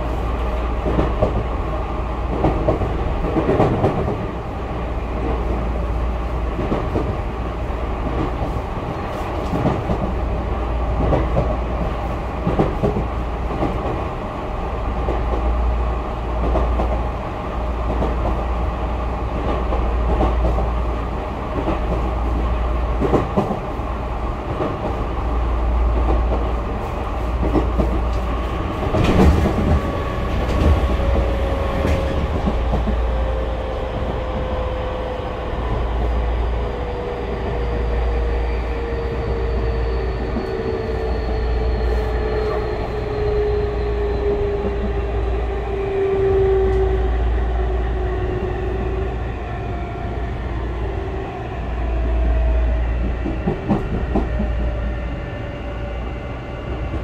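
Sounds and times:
wheels rumbling on rail: 0.0s - 57.0s
rail-joint clacks: 26.0s - 33.4s, 53.0s - 54.8s.

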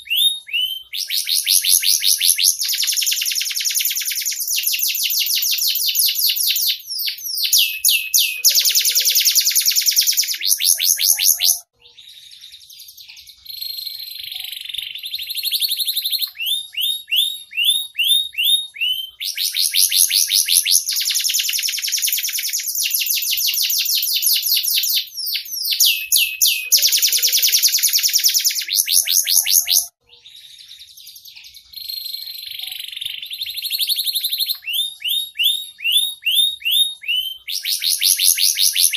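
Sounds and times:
canary singing trills: 0.0s - 38.9s.

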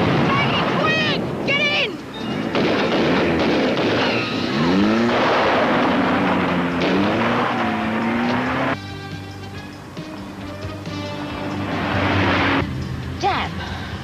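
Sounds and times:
music: 0.4s - 2.7s, 8.8s - 14.0s
vehicle engine revving: 2.4s - 9.2s, 10.0s - 14.0s.

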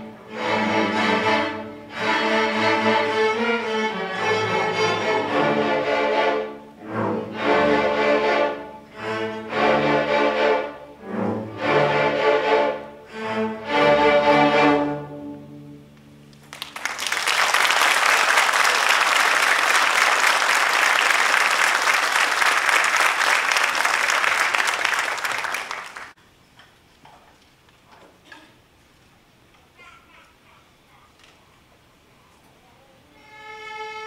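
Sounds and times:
string orchestra chords: 0.0s - 16.3s, 33.2s - 34.0s
audience applause: 16.4s - 26.2s.

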